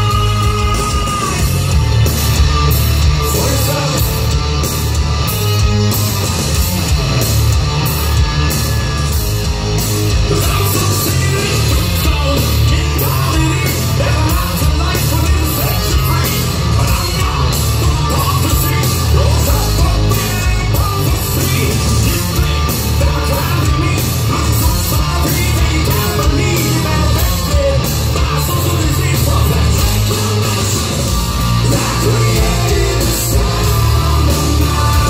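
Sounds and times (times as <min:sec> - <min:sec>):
man singing: 0:00.0 - 0:01.6, 0:03.2 - 0:04.3, 0:10.3 - 0:35.0
distorted electric guitars: 0:00.0 - 0:35.0
heavy bass and drums: 0:00.0 - 0:35.0.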